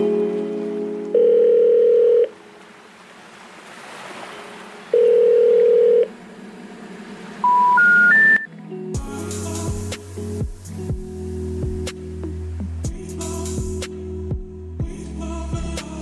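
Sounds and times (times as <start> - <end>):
long telephone beeps: 1.2 - 2.3, 5.0 - 6.1, 7.4 - 8.5.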